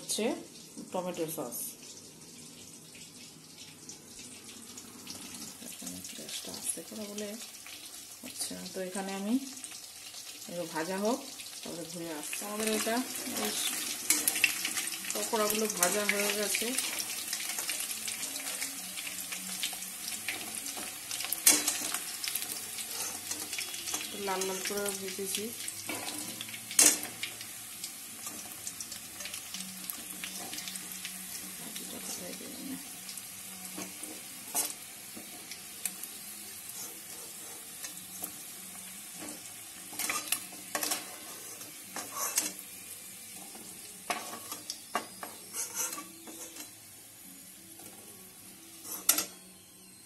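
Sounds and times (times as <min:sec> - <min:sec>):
chicken deep-frying sizzle: 0:00.0 - 0:50.0
spatula scraping and knocking wok: 0:12.6 - 0:17.7, 0:20.3 - 0:24.8, 0:25.8 - 0:27.2, 0:36.7 - 0:38.3, 0:39.2 - 0:42.6, 0:43.4 - 0:46.7, 0:48.8 - 0:49.4.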